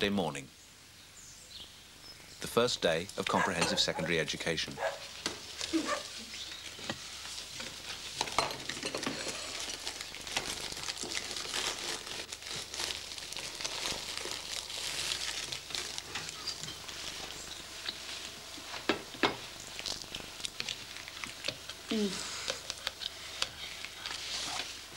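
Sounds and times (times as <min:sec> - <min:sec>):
cups and cutlery clinking: 0:03.3 - 0:04.1, 0:08.2 - 0:09.7
cereal packet rustling: 0:09.2 - 0:18.4.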